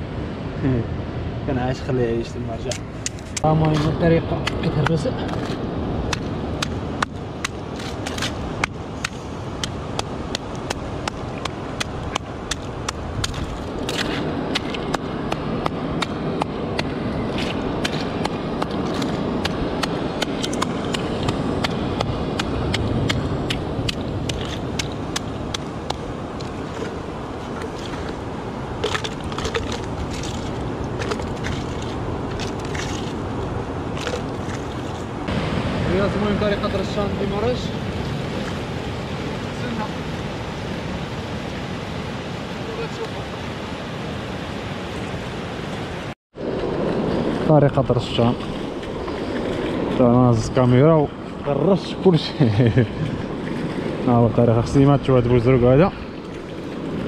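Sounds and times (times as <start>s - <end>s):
stone knocking and scraping rock: 2.7s - 27.0s, 28.8s - 33.2s.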